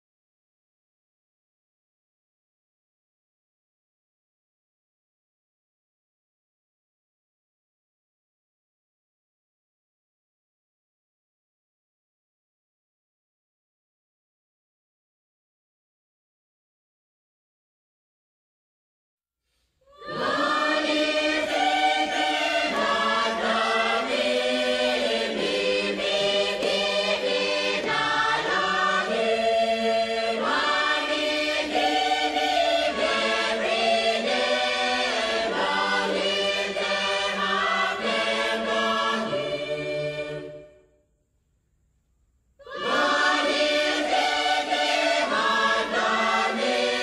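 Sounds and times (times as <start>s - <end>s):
choir singing held chords: 19.9s - 41.0s, 42.6s - 47.0s.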